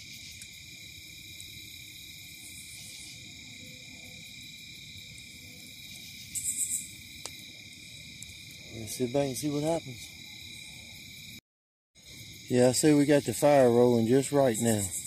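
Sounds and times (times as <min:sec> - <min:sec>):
crickets trilling: 0:00.0 - 0:11.4, 0:12.0 - 0:15.0
loud raspy insect burst: 0:06.0 - 0:07.4.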